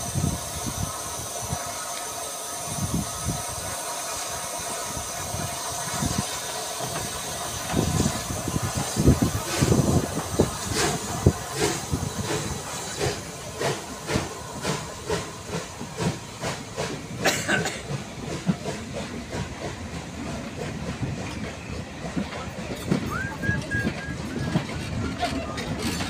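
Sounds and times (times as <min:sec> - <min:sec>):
steam hissing: 0:00.0 - 0:26.0
steam locomotive exhaust beats: 0:00.0 - 0:26.0
wheels clattering on rails: 0:15.5 - 0:26.0.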